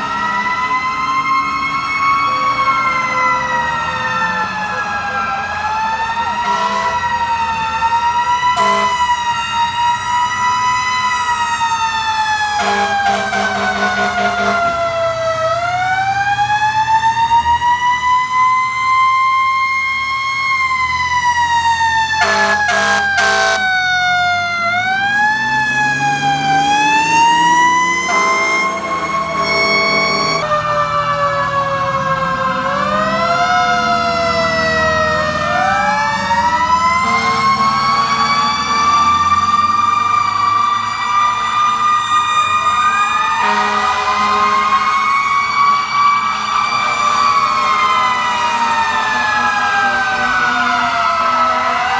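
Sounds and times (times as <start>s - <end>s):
fire truck siren wailing: 0.0s - 51.9s
air horn blasts: 6.4s - 7.0s, 8.6s - 9.1s, 12.6s - 14.7s, 22.2s - 23.6s, 27.9s - 30.5s, 37.0s - 37.5s, 43.4s - 44.9s.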